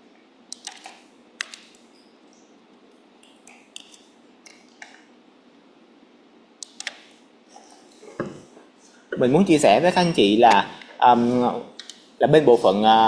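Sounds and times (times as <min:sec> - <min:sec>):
low steady hiss: 0:00.0 - 0:13.0
computer mouse clicking: 0:00.5 - 0:02.4, 0:03.2 - 0:05.1, 0:06.6 - 0:07.2, 0:11.8 - 0:12.0.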